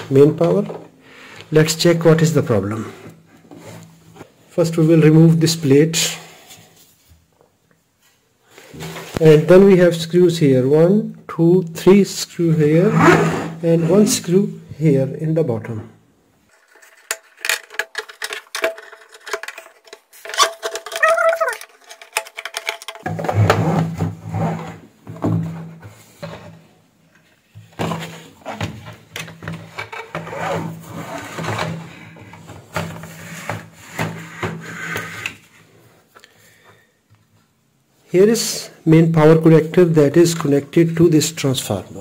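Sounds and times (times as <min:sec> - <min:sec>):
plastic housing clicks and rattles: 0:16.6 - 0:23.1.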